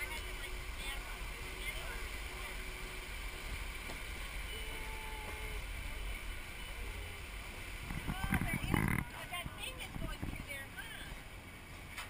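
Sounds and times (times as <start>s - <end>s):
train car rumbling and rushing: 0.0s - 12.0s
wind buffeting microphone: 7.6s - 11.2s.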